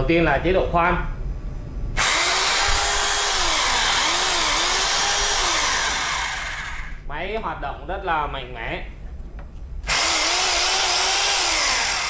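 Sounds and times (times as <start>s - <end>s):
hammer drill running unloaded: 2.0s - 7.0s, 9.9s - 12.0s.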